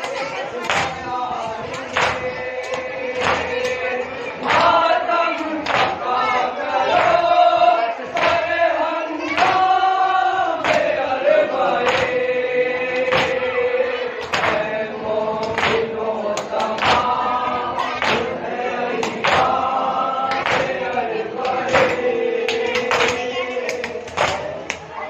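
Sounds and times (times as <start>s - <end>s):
men chanting in unison: 0.2s - 24.7s.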